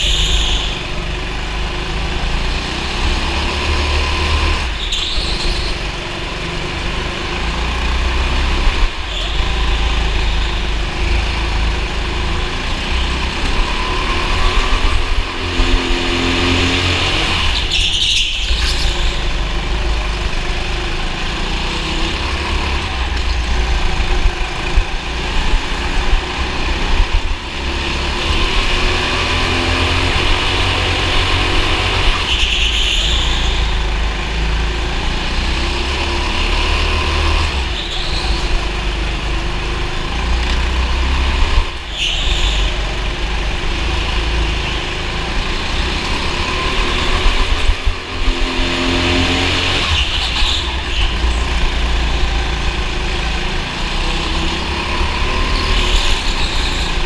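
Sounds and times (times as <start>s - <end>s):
go-kart engine running: 0.0s - 57.0s.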